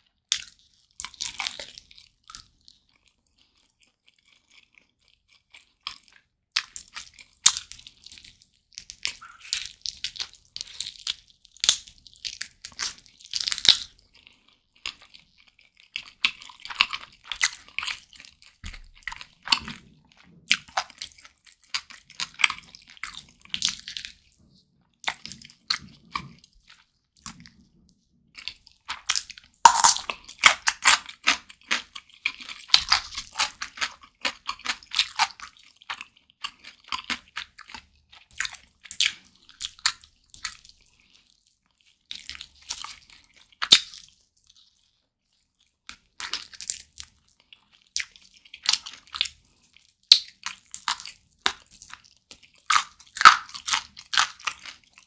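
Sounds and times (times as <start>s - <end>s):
biting and chewing meat: 0.3s - 27.6s, 28.3s - 55.0s
wet mouth clicks: 29.7s - 30.2s.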